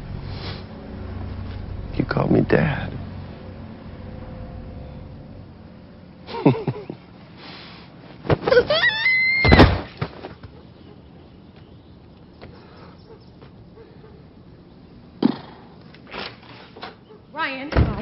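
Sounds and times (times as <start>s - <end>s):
short falling pitch sound: 0.0s - 6.3s
body thudding on ground: 8.2s - 8.8s, 9.4s - 10.6s
boy screaming: 8.5s - 9.8s.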